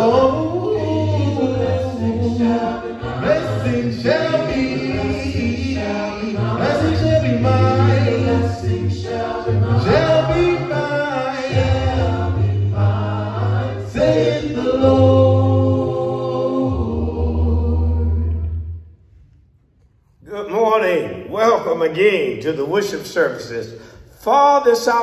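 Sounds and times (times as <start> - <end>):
male group singing a cappella: 0.0 - 18.6.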